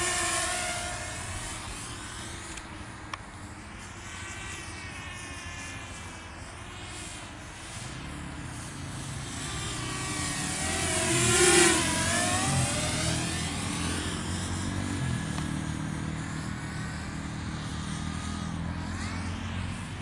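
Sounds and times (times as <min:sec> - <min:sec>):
quadcopter motors whining: 0:00.0 - 0:20.0.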